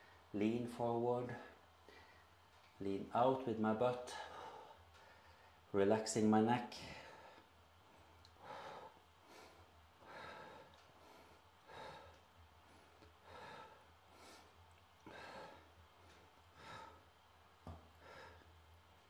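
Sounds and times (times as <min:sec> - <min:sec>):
man breathing: 0:01.3 - 0:02.6, 0:04.1 - 0:05.7, 0:06.8 - 0:18.8.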